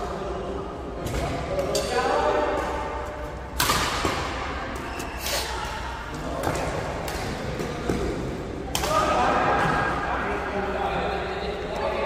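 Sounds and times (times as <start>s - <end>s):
rackets striking shuttlecock: 1.1s - 5.0s.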